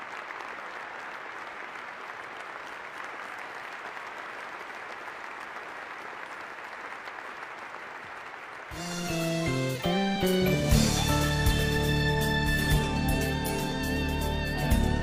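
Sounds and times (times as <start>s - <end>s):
crowd applauding: 0.0s - 15.0s
closing music: 8.7s - 15.0s.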